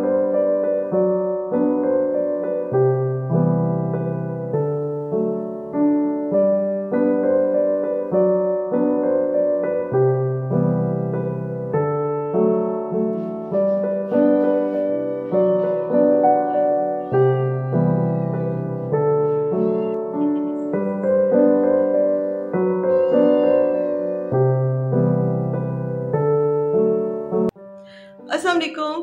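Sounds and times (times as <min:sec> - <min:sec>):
gentle piano music: 0:00.0 - 0:29.0
cat meowing faintly: 0:14.0 - 0:21.7, 0:22.5 - 0:24.5.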